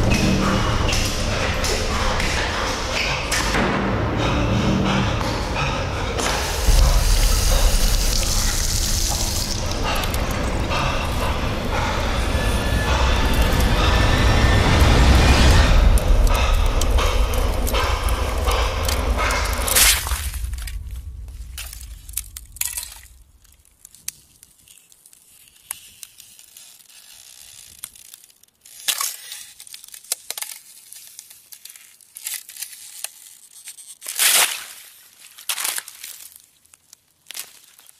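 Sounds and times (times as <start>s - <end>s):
loud deep dense noise: 0.0s - 23.4s
sharp crackles and crunching: 6.2s - 37.9s.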